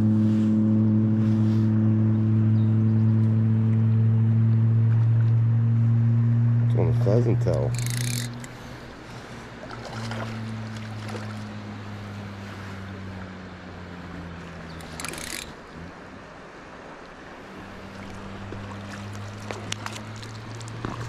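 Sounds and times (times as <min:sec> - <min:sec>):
low hum: 0:00.0 - 0:21.0
creek water running: 0:06.7 - 0:21.0
sharp clicks: 0:07.5 - 0:08.6, 0:14.8 - 0:15.6
water splash: 0:09.6 - 0:11.6, 0:17.7 - 0:21.0.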